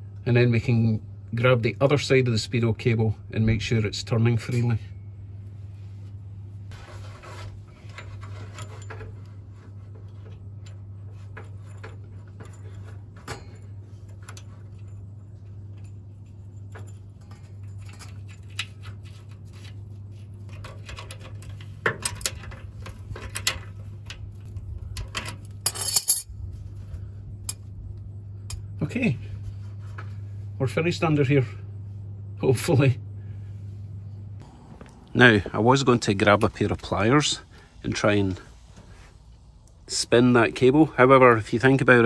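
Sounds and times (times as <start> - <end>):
steady low hum: 0.0 - 42.0
metal nut scraping and clicking: 10.0 - 26.3.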